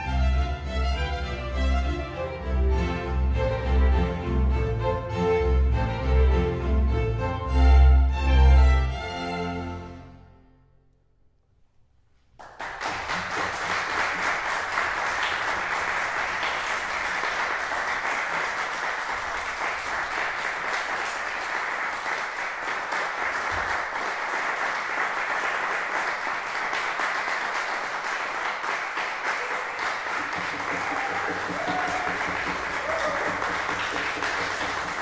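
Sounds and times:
audience applauding: 12.4 - 35.0.

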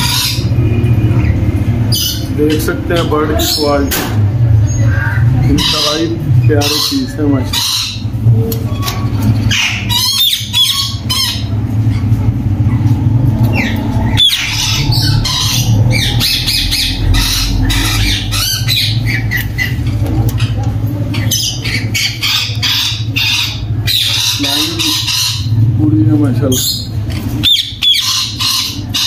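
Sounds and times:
parrots squawking: 0.0 - 29.0
steady low hum: 0.0 - 29.0.

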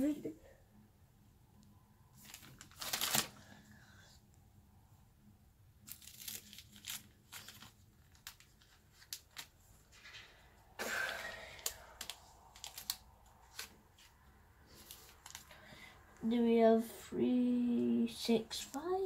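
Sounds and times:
plastic sleeves crinkling: 2.1 - 3.6, 5.8 - 15.7.

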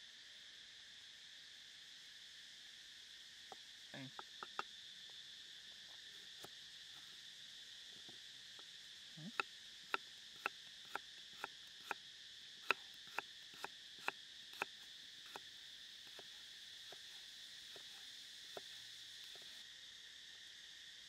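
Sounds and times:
knife chopping carrot on wood: 9.3 - 12.0, 12.6 - 14.7.

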